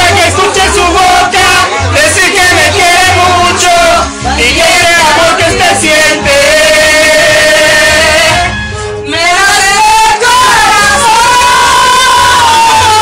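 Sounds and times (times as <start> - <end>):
backing music: 0.0 - 13.0
women singing into microphone: 0.0 - 13.0.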